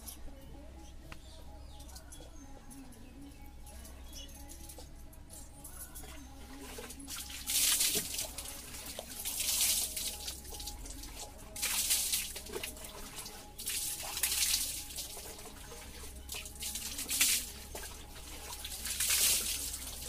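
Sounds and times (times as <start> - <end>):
water pouring and splashing: 6.5 - 20.0.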